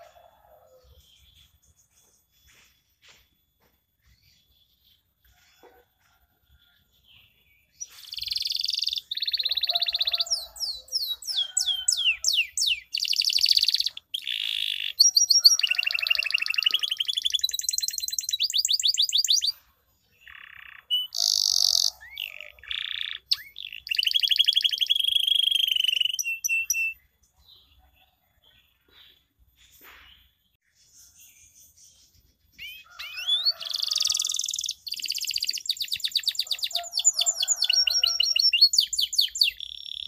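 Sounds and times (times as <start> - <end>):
canary singing: 7.7 - 27.7, 32.4 - 40.0.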